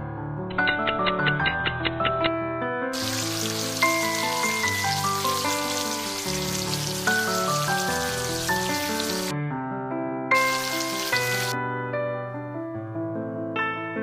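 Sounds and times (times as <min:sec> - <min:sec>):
background music with plucked notes: 0:00.0 - 0:14.0
egg sizzling in hot oil: 0:03.0 - 0:09.3, 0:10.3 - 0:11.6.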